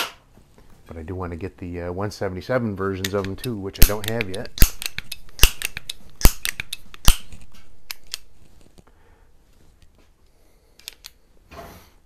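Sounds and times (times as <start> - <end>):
pellet pistol metallic clicks: 3.0 - 8.3.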